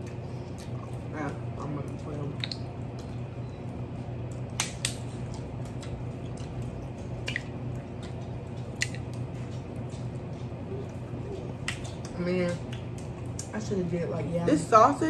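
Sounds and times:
steady low hum: 0.0s - 15.0s
crab shells snapping: 4.2s - 9.3s.

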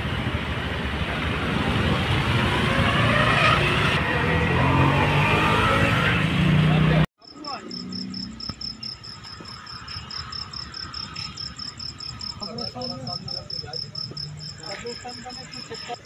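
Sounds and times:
crickets chirping: 7.2s - 16.0s.

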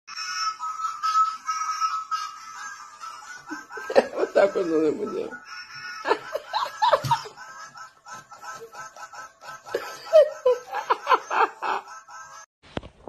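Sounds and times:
person laughing: 3.2s - 5.4s, 6.0s - 12.1s.

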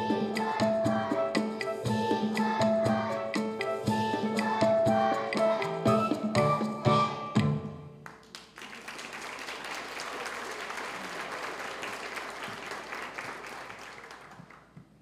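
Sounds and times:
audience applauding: 8.0s - 14.8s.

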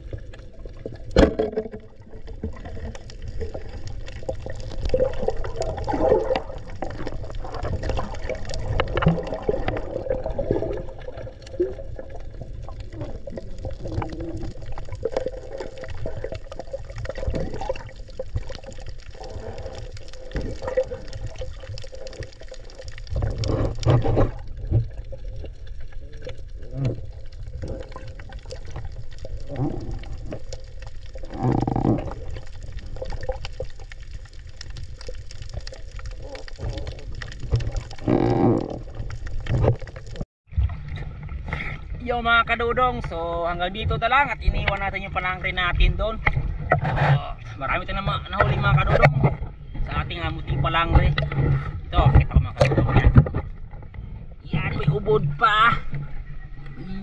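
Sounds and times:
churning water burst: 0.0s - 42.1s.

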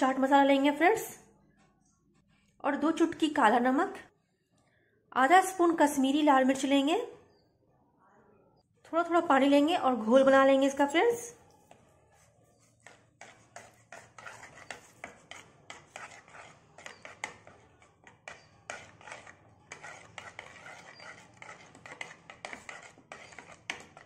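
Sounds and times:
spoon scraping in bowl: 11.5s - 24.0s.

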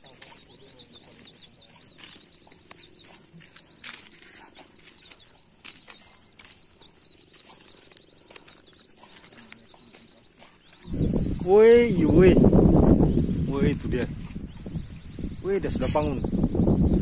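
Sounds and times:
rustles in undergrowth: 0.0s - 11.6s
night insects chirping: 0.0s - 17.0s.

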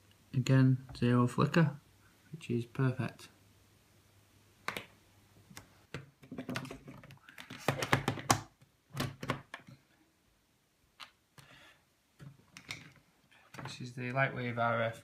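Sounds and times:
plastic clicks and knocks: 5.9s - 9.7s.

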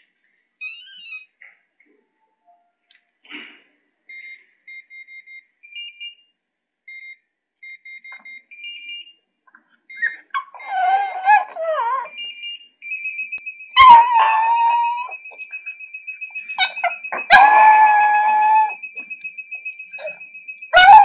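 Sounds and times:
keypad beeps: 6.9s - 9.1s
dog whimpering: 10.0s - 12.2s, 13.8s - 15.2s, 16.6s - 18.8s
dog howling: 10.4s - 12.1s, 13.8s - 15.2s, 16.6s - 18.8s, 20.8s - 21.0s.

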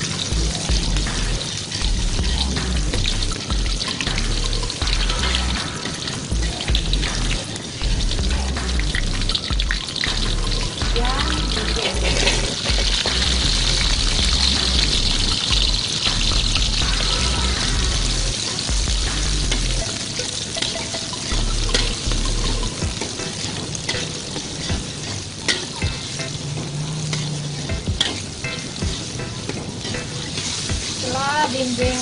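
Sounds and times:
food sizzling in hot oil: 0.0s - 32.0s
metal spatula scraping pan: 11.6s - 13.1s, 19.5s - 31.0s.

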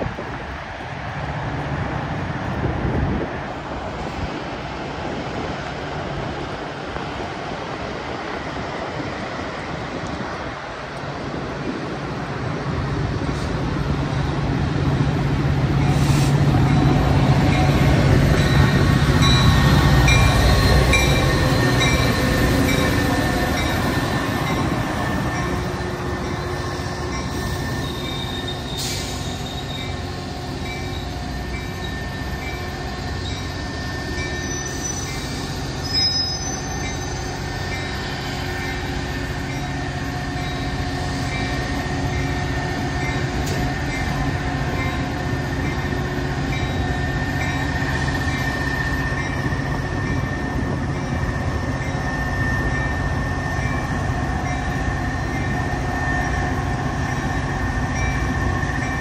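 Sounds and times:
train rumbling by: 0.0s - 59.0s
wheel squeals: 33.2s - 37.4s.

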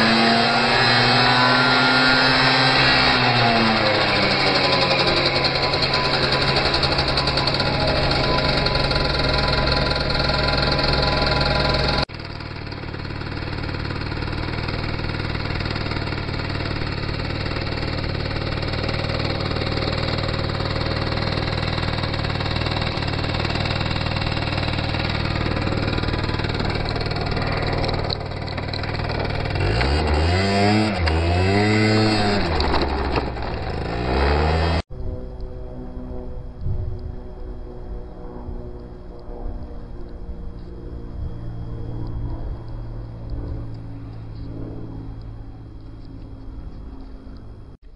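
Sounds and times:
scooter engine running: 0.0s - 34.9s, 39.2s - 47.9s
engine revving: 0.0s - 35.4s.

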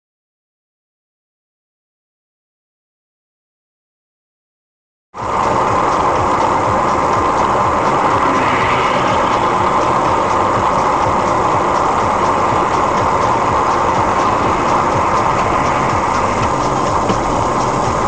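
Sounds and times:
car road and engine noise: 5.2s - 18.0s.

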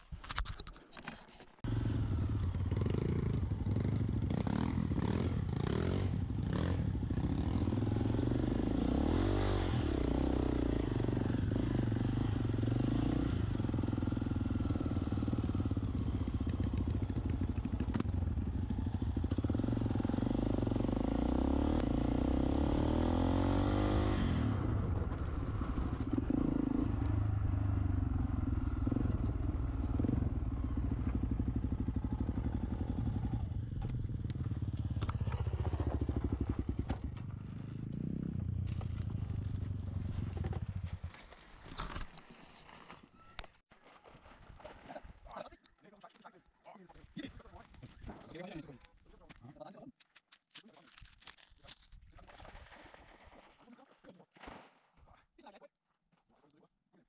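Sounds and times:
dirt bike engine: 1.6s - 42.2s.

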